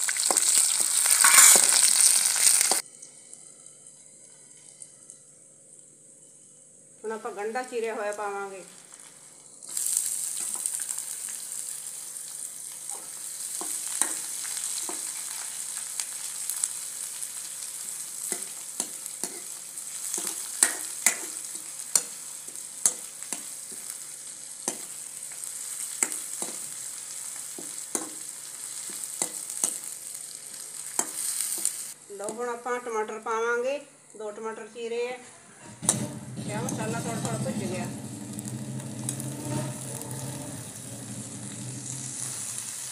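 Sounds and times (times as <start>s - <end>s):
onions sizzling in hot oil: 0.0s - 5.0s, 7.4s - 32.0s, 35.8s - 42.9s
metal ladle clinking and scraping: 1.2s - 1.8s.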